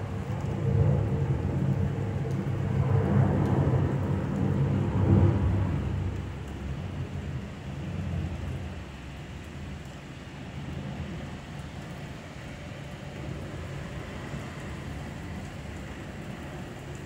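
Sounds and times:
low rumble of thunder: 0.0 - 9.8
steady rain falling: 0.0 - 17.0.

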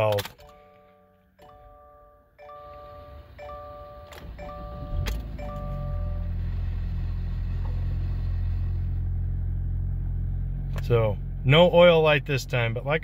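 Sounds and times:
car warning chime: 0.0 - 6.7
car engine cranking and idling: 2.4 - 13.0.

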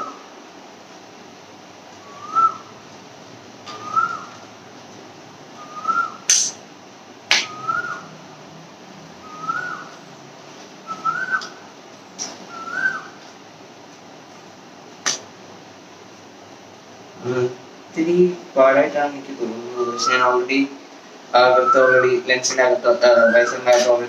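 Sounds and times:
bird whistling: 2.0 - 2.7, 3.7 - 4.4, 5.6 - 6.5, 7.3 - 8.1, 9.2 - 10.0, 10.8 - 11.6, 12.2 - 13.2, 19.7 - 20.5, 21.4 - 22.2, 22.9 - 24.0.

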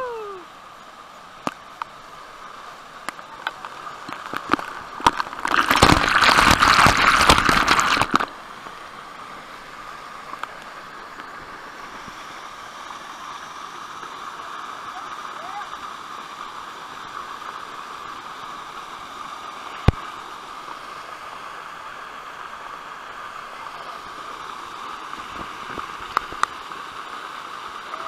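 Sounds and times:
waterfall pouring into pool: 0.0 - 28.0.

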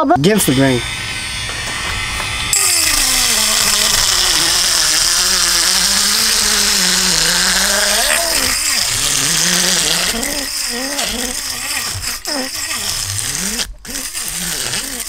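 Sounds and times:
electric fish scaler scraping scales: 0.2 - 15.0.

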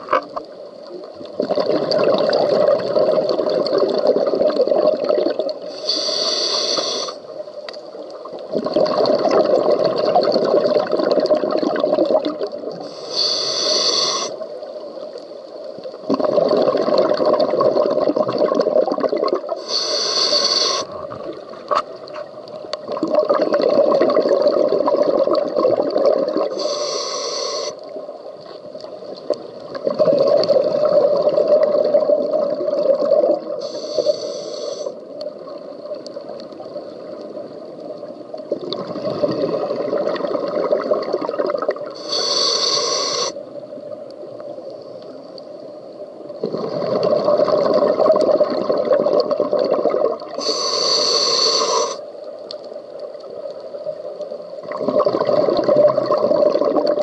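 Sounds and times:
rumble of exhaled bubbles: 0.0 - 5.7, 8.2 - 12.9, 15.8 - 19.6, 20.8 - 26.6, 29.1 - 33.6, 35.2 - 42.0, 46.2 - 50.4, 53.9 - 57.0
regulator inhalation hiss: 5.6 - 7.3, 12.8 - 14.5, 19.6 - 21.0, 26.5 - 27.9, 33.6 - 35.1, 42.0 - 43.4, 50.4 - 52.1.

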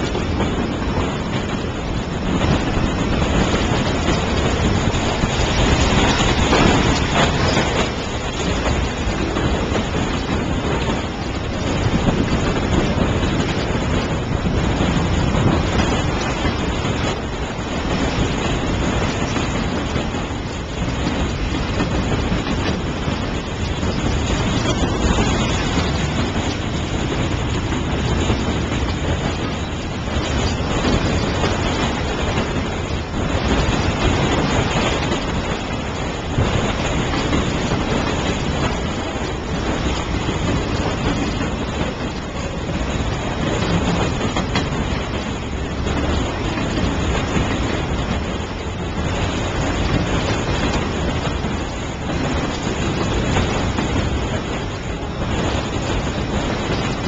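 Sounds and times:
train wheels rolling on rails: 0.0 - 57.0.

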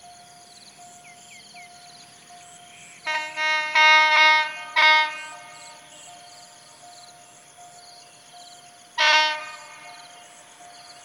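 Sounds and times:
insects chirping: 0.0 - 11.0
locomotive horn blasts: 3.1 - 5.9, 9.0 - 10.2.

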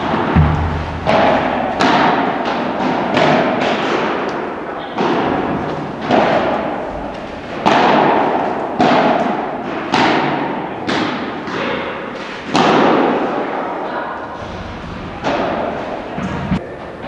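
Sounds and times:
padel ball pops echoing: 0.0 - 3.9.

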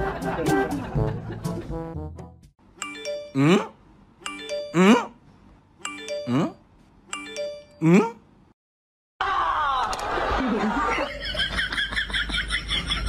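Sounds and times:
electronic ding-dong chime: 2.8 - 5.0, 5.8 - 7.8.

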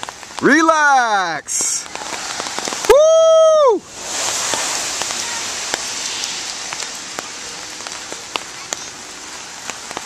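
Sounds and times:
rain on wet pavement: 0.0 - 10.0
sharp rain drop ticks: 0.0 - 10.0
person shouting woo: 2.9 - 3.8.

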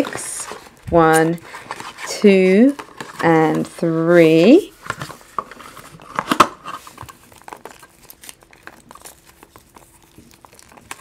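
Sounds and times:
foil wrappers crinkling: 4.7 - 11.0.

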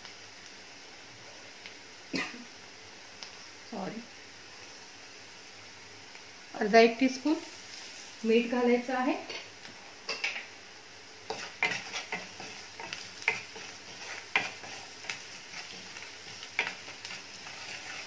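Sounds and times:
onions sizzling in oil: 0.0 - 18.0
spatula scraping and knocking pan: 11.3 - 18.0.

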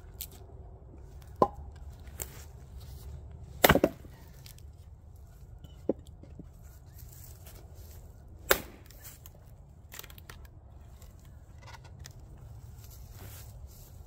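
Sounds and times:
axe striking wood: 3.6 - 4.1, 8.5 - 8.9
wood splitting and falling: 3.6 - 4.6.

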